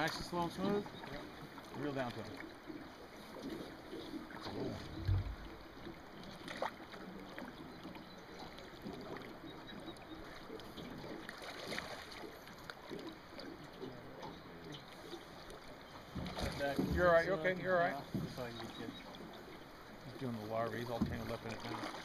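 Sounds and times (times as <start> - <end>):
low thump: 4.8 - 5.6.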